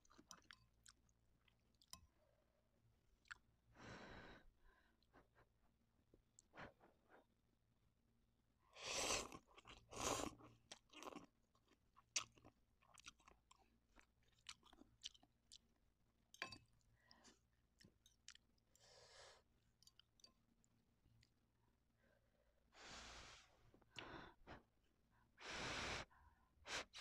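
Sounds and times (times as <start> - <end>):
wet chewing with mouth clicks: 0.0 - 2.0, 9.2 - 15.8.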